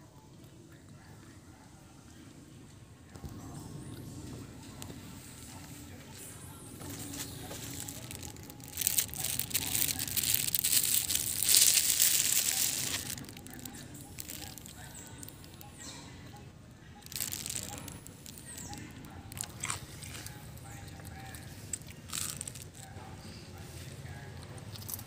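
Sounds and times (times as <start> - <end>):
plastic crinkling: 5.6 - 23.1.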